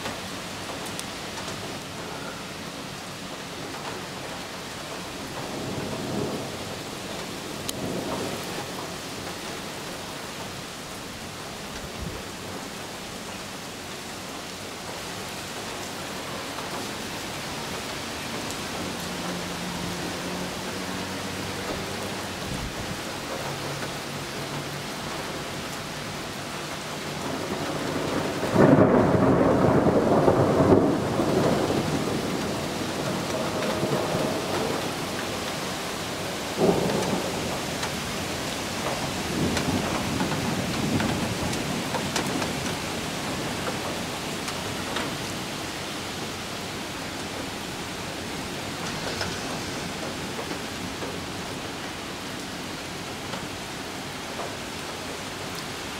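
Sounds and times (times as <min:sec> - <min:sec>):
steady rain: 0:00.0 - 0:55.9
thunder rumbling: 0:05.0 - 0:10.4, 0:14.8 - 0:55.9
thunder clap: 0:27.2 - 0:35.5, 0:36.6 - 0:38.0, 0:38.8 - 0:45.1.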